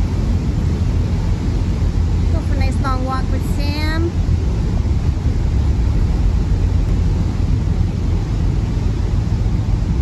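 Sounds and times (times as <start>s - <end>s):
motor boat engine rumble: 0.0s - 10.0s
water rushing: 0.0s - 10.0s.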